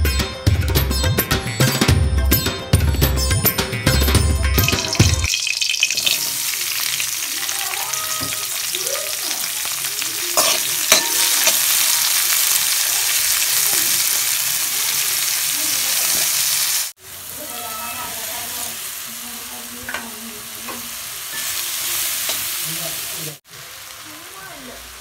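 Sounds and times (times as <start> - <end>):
onions sizzling in hot oil: 4.6 - 25.0
spoon knocking on wok: 8.1 - 8.5, 10.4 - 11.9, 19.8 - 21.6.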